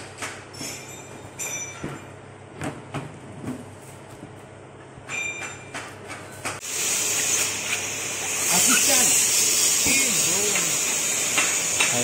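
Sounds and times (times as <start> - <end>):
knocks and rustles: 0.1 - 6.6.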